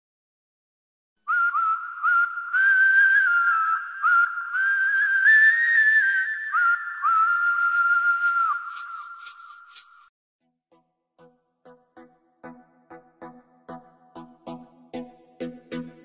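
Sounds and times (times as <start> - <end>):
person whistling a tune: 1.3 - 10.0.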